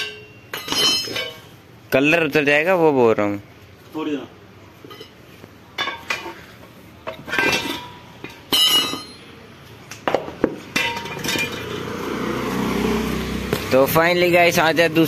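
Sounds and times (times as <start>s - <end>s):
metal clinks and knocks: 0.0s - 1.6s, 4.8s - 9.4s, 10.0s - 12.0s.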